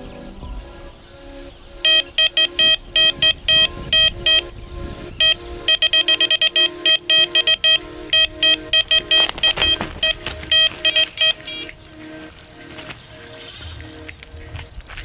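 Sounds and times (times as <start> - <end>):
bite alarm beeping: 1.8 - 12.2.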